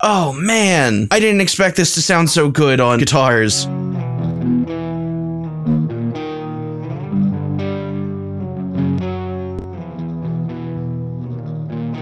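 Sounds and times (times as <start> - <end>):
overdriven electric guitar riff: 3.7 - 12.0.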